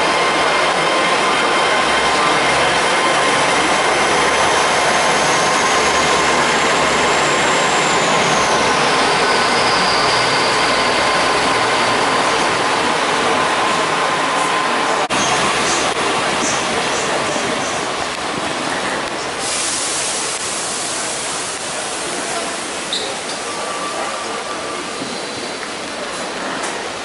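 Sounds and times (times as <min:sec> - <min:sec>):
train whine gliding down: 0:00.0 - 0:22.6
train running past: 0:00.0 - 0:27.0.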